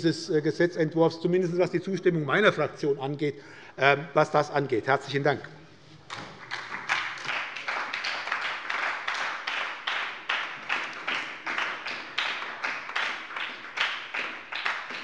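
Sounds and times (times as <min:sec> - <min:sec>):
group applauding: 0:06.0 - 0:15.0.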